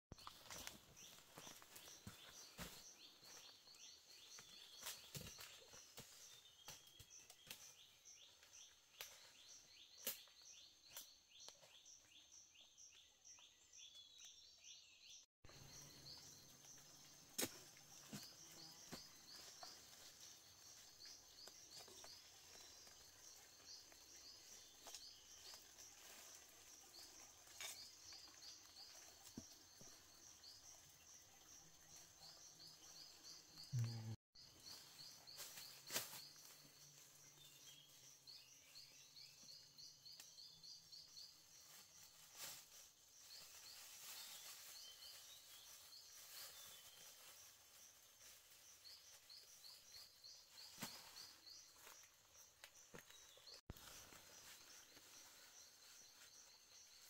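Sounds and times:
rustling in dry leaves: 41.5 - 52.0.

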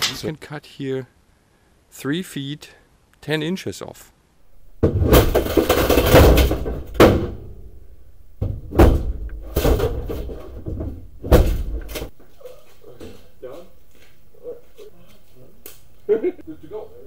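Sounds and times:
metal clattering and rattling: 4.7 - 7.8, 8.4 - 12.2
hammer banging on sheet metal: 4.8 - 7.8, 8.4 - 12.1.

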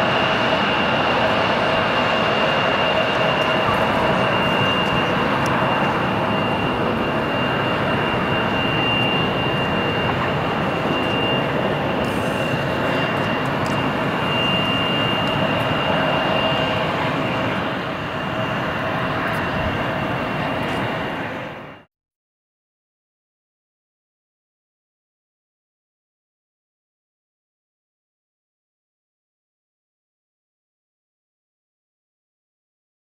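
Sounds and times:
jet engines running with whine: 0.0 - 21.9.

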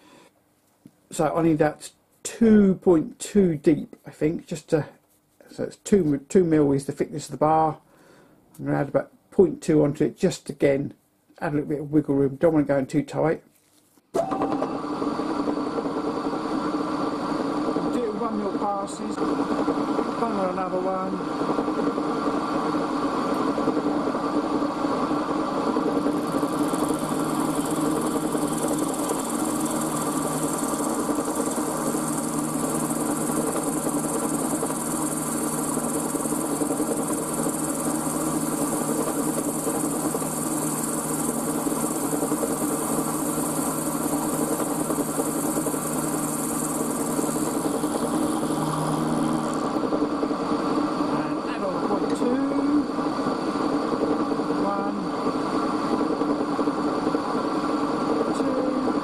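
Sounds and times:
milling machine motor hum: 25.2 - 54.0
high hiss of metal cutting: 26.2 - 49.7.

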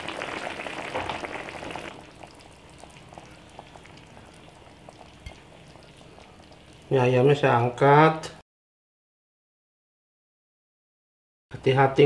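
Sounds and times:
broth bubbling: 0.0 - 6.9
faint simmer with small pops: 0.0 - 7.0.

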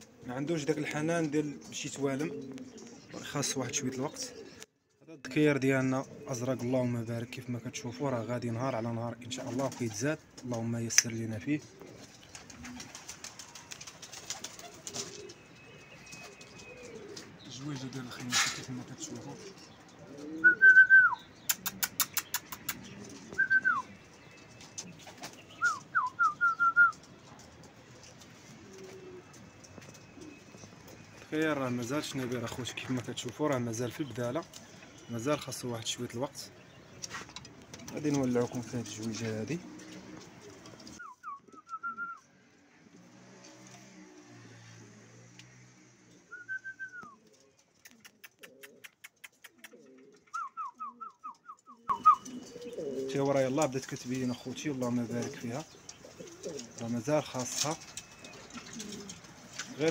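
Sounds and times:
pigeons cooing: 0.0 - 59.9
fast sharp clicks: 21.5 - 22.9.

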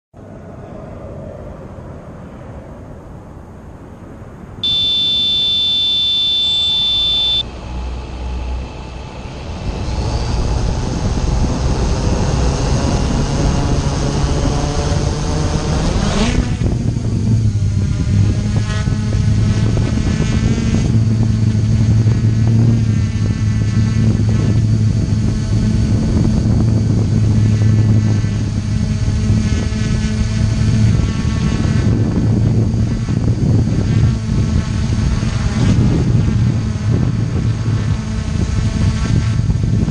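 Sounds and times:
long electronic beep: 4.6 - 7.5
drone motors and propellers buzzing: 4.6 - 39.9.

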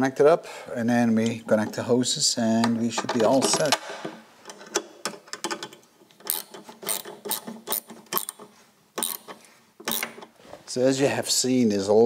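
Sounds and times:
ratchet wrench clicking: 6.3 - 8.4, 9.0 - 9.3.

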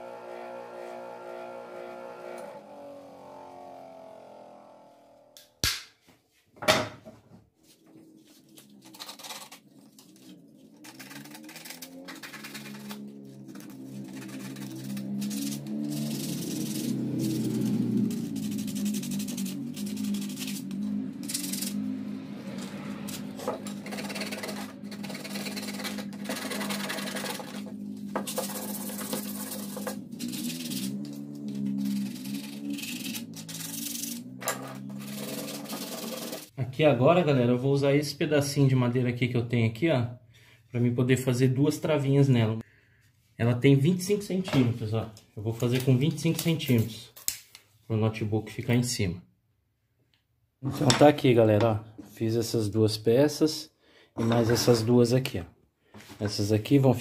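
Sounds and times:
wood hand-sanding: 13.6 - 20.7, 23.6 - 27.7, 28.3 - 31.0, 35.0 - 36.5.

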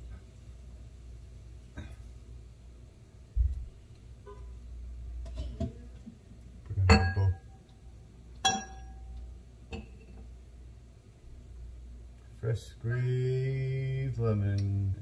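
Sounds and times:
kitchenware knocking and clinking: 6.9 - 7.4, 8.5 - 9.0
ringing clinks: 8.4 - 9.1.

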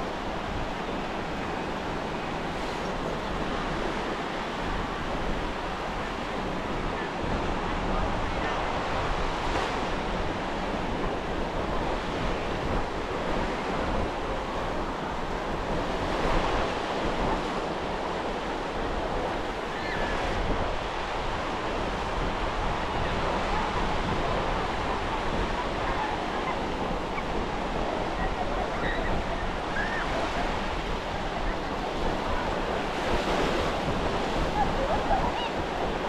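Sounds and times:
ocean surf on sandy beach: 0.0 - 36.0
wind rumbling on microphone: 0.0 - 36.0.

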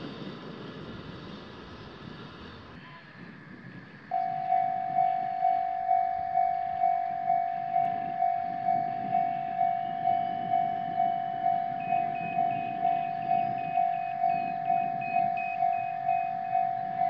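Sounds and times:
level crossing warning bell: 4.1 - 17.0.

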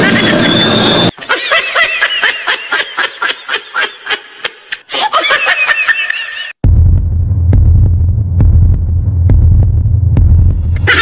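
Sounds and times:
person giggling: 1.2 - 6.5, 10.8 - 11.0.

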